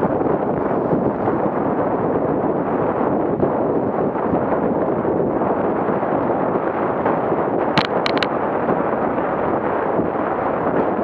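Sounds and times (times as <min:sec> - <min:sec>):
wind rumble on microphone: 0:00.0 - 0:11.0
vehicle road noise: 0:07.8 - 0:08.3.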